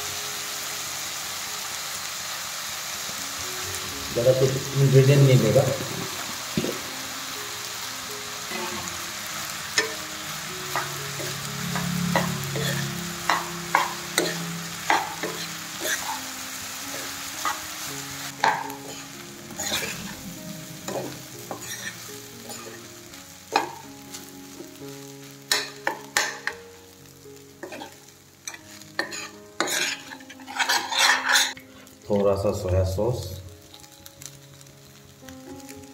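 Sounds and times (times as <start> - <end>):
rice sizzling in hot oil: 0.0 - 35.9
metal spoon scraping a pan: 8.5 - 9.0, 10.7 - 16.3, 18.4 - 20.2, 20.9 - 22.9, 25.5 - 26.6, 27.6 - 32.0.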